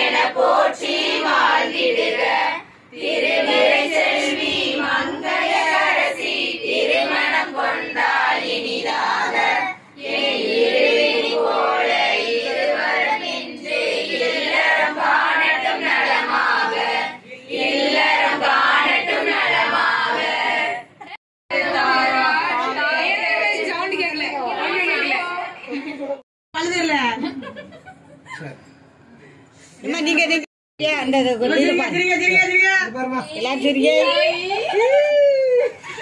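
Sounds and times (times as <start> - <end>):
women singing a cappella: 0.0 - 25.6.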